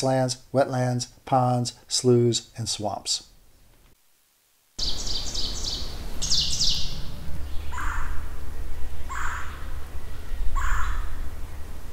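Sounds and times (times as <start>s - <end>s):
rapid high bird chirps: 4.8s - 8.2s
harsh bird call: 4.8s - 8.3s, 9.0s - 9.8s, 10.5s - 11.3s
low steady rumble: 4.8s - 11.9s.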